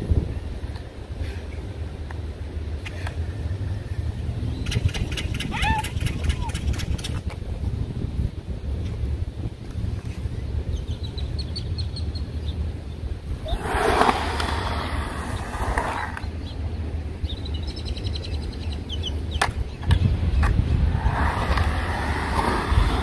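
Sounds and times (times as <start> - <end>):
skateboard wheels rolling on concrete: 0.0 - 23.0
wind rumble on microphone: 0.0 - 23.0
small birds chirping: 10.3 - 13.1, 15.3 - 20.6.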